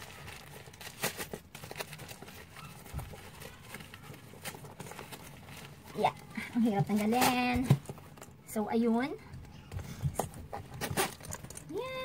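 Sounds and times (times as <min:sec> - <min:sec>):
tissue paper rustling: 0:00.0 - 0:07.8.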